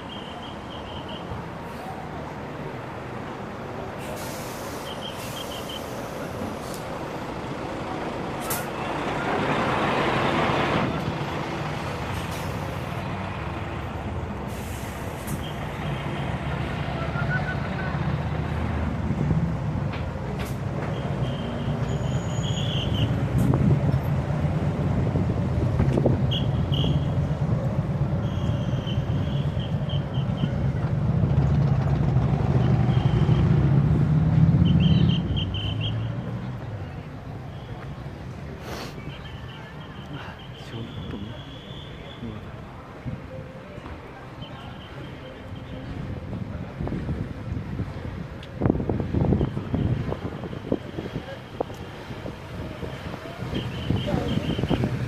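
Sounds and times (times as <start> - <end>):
bus engine rumble: 0.0 - 55.0
street traffic: 0.0 - 55.0
air brakes hissing: 3.9 - 6.9, 8.4 - 8.8, 12.1 - 13.0, 14.4 - 15.7, 38.5 - 39.2.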